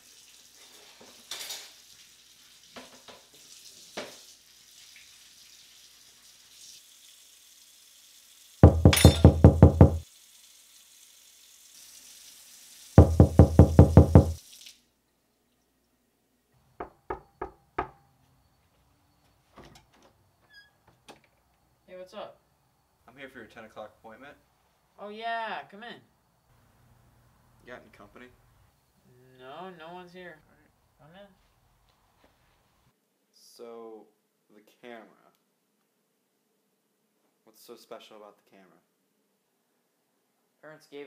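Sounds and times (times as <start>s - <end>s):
knocks on wooden door: 8.6s - 10.0s, 13.0s - 14.4s, 16.8s - 18.0s.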